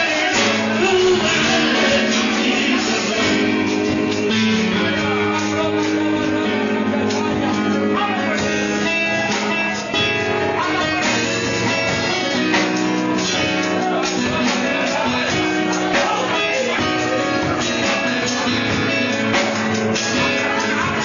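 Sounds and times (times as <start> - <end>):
guitar chords: 0.0 - 21.0
worship band playing: 0.0 - 21.0.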